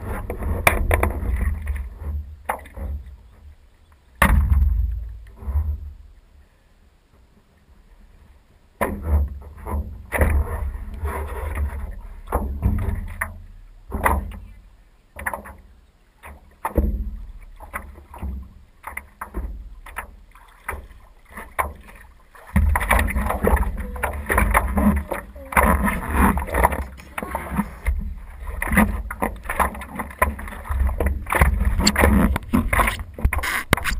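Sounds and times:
paddle splashing in water: 0:00.0 - 0:06.2, 0:07.8 - 0:33.9
low rumble at microphone: 0:22.5 - 0:33.9.

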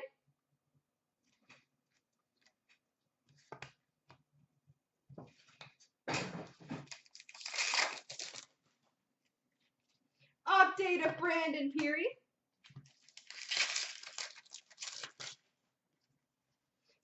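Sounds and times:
foil wrapper crinkling and tearing: 0:06.9 - 0:08.5, 0:12.9 - 0:15.4.

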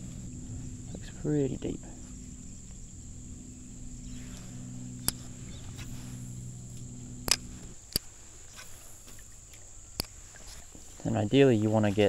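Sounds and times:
high-pitched insect drone: 0:00.0 - 0:10.1
low hum: 0:00.0 - 0:10.4
sharp clicks: 0:01.9 - 0:08.1.

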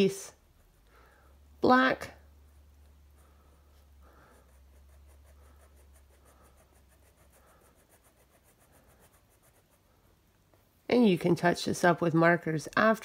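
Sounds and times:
low steady hum: 0:00.0 - 0:13.0
marker scratching on paper: 0:02.4 - 0:10.1.

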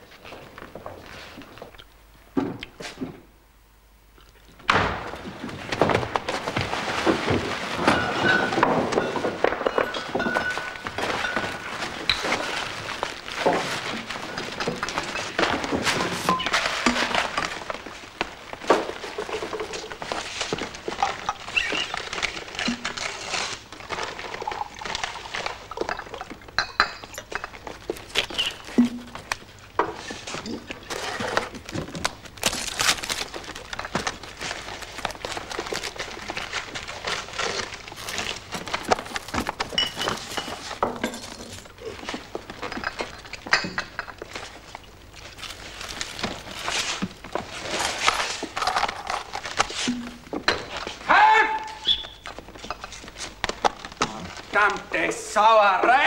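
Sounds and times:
people chewing food: 0:00.0 - 0:03.0, 0:04.0 - 0:55.0
paper wrappers rustling: 0:05.2 - 0:26.6, 0:27.2 - 0:56.0
bottles and dishes clinking: 0:07.7 - 0:12.8, 0:24.3 - 0:29.2, 0:39.7 - 0:44.3.

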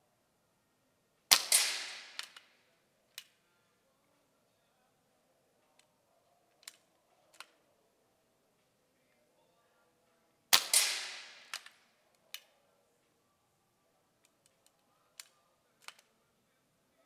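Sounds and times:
air rifle shot: 0:01.3 - 0:02.4, 0:10.5 - 0:11.7.

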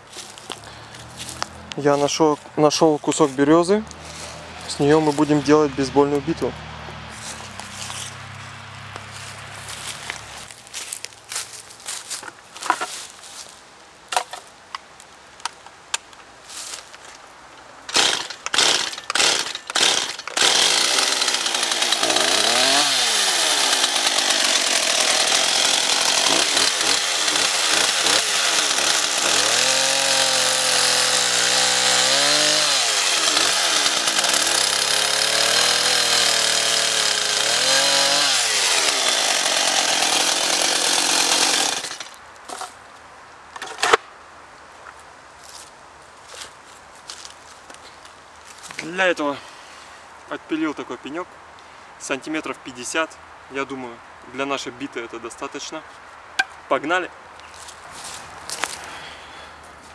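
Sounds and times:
chainsaw cutting log: 0:03.3 - 0:06.5, 0:17.9 - 0:42.7
chainsaw clicks and knocks: 0:17.9 - 0:30.2.

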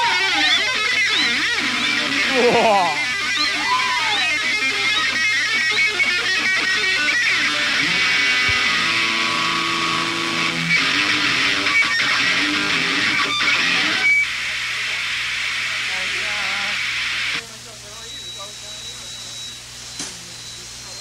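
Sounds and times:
live rock band playing: 0:00.0 - 0:14.2
strummed electric guitar: 0:00.0 - 0:14.3.

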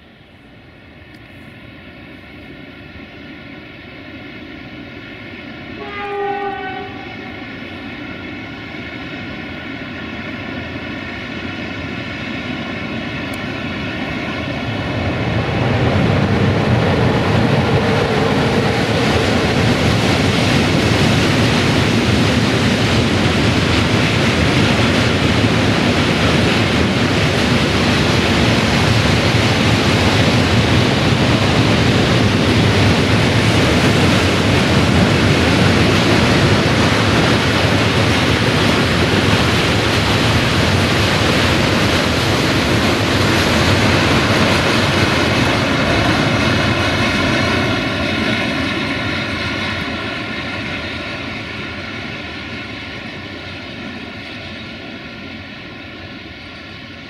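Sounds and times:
locomotive whine: 0:00.0 - 0:57.0
train horn: 0:05.8 - 0:07.6.

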